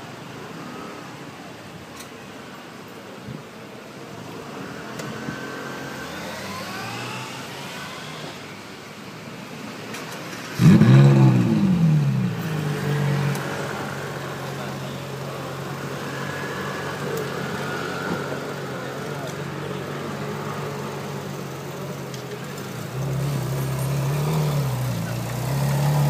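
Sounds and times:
faint street noise: 0:00.0 - 0:26.0
car engine starting and revving: 0:04.6 - 0:08.5, 0:10.3 - 0:14.6, 0:20.4 - 0:26.0.

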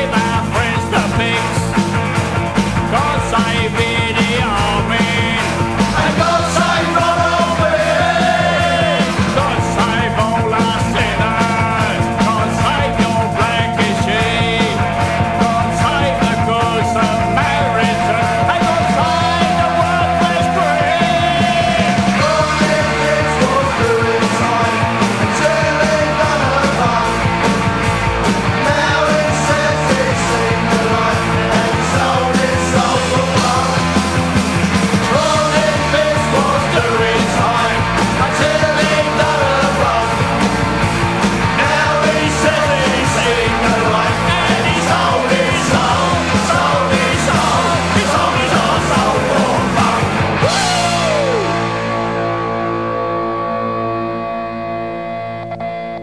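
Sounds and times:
fast drums: 0:00.0 - 0:52.2
punk rock band: 0:00.0 - 0:56.0
shouted singing: 0:02.9 - 0:27.4, 0:28.5 - 0:34.3, 0:34.9 - 0:40.4, 0:41.4 - 0:51.8
ringing guitar chord with slide: 0:50.3 - 0:56.0.

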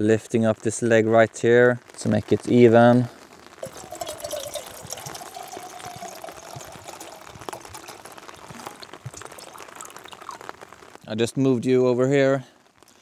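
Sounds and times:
raindrops ticking on a tarp: 0:00.0 - 0:13.0
water pouring: 0:03.6 - 0:11.1.

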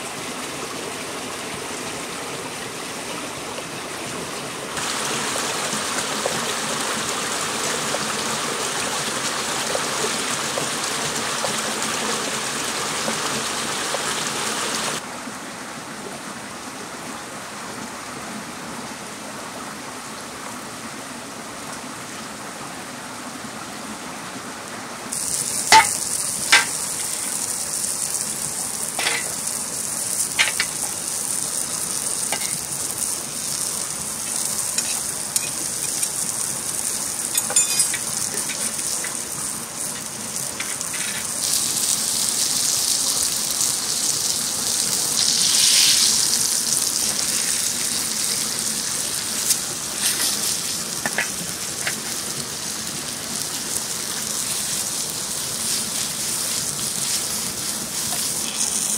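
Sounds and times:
food sizzling on hot stone: 0:04.8 - 0:15.0, 0:25.1 - 0:58.9.

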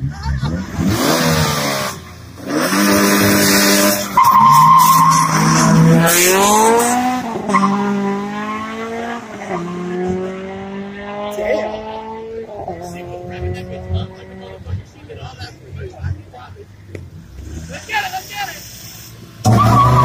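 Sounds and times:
race car engine revving: 0:00.0 - 0:20.0
tires squealing: 0:00.5 - 0:10.4, 0:17.3 - 0:20.0.

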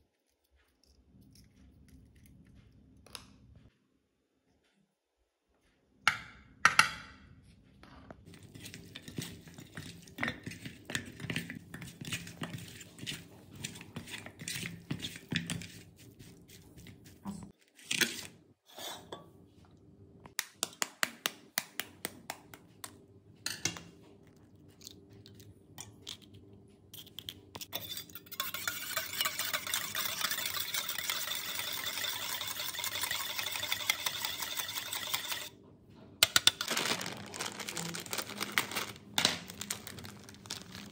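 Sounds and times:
utensil beating egg in bowl: 0:08.2 - 0:17.6, 0:26.9 - 0:35.6
spoon scraping steel bowl: 0:08.3 - 0:19.2, 0:27.0 - 0:35.6.

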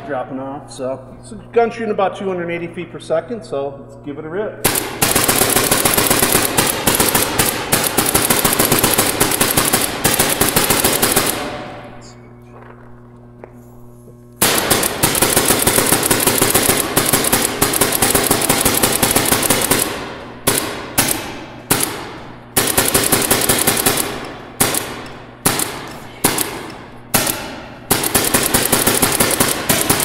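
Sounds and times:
echo in large hall: 0:00.0 - 0:13.0, 0:14.4 - 0:30.0
paintball marker rapid firing: 0:04.6 - 0:11.8, 0:14.4 - 0:30.0.

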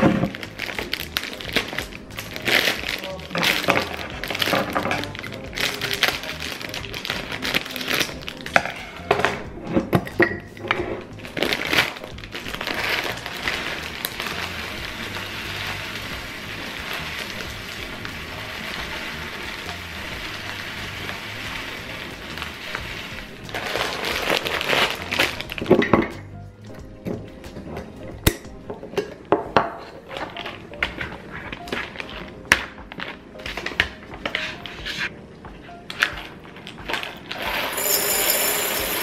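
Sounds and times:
plastic bag crinkling: 0:00.0 - 0:08.8, 0:11.1 - 0:25.9
background music: 0:00.0 - 0:39.0
muesli pouring into glass jar: 0:37.5 - 0:39.0.

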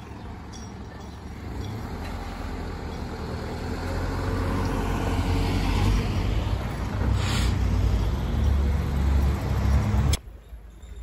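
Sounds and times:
truck and car driving past: 0:00.0 - 0:10.2.

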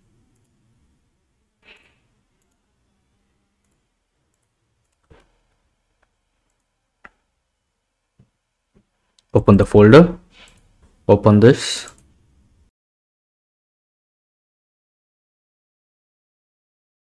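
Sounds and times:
computer mouse clicks: 0:00.3 - 0:00.6, 0:01.6 - 0:02.6, 0:03.6 - 0:07.2, 0:10.4 - 0:10.7, 0:11.7 - 0:12.2.

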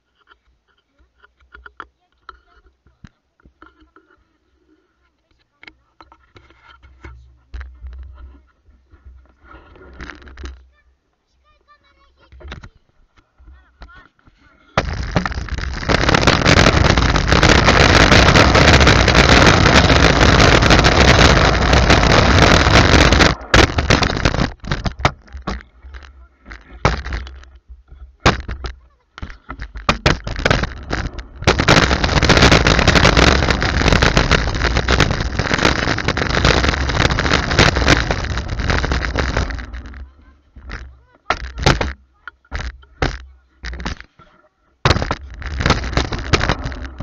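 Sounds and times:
rolling rumble of moving camera: 0:00.0 - 0:10.8, 0:12.1 - 0:47.0
wind buffeting microphone: 0:14.8 - 0:25.0.

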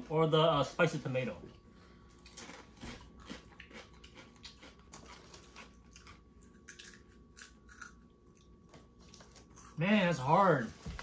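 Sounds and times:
potato chips crunching: 0:02.2 - 0:10.1.

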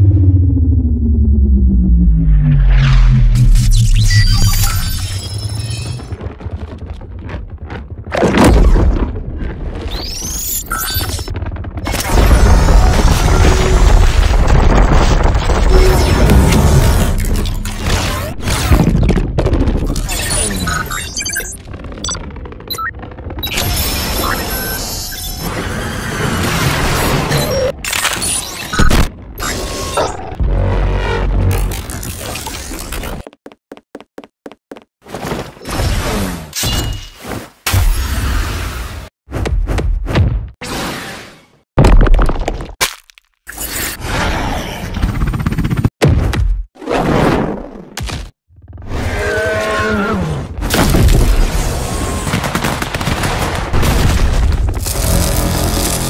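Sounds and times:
deep rumble: 0:00.0 - 0:04.4.

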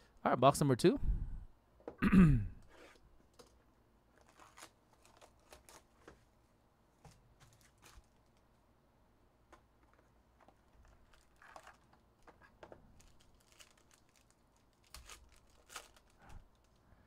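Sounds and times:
foil wrapper crinkling and tearing: 0:04.2 - 0:06.0, 0:10.5 - 0:16.8.

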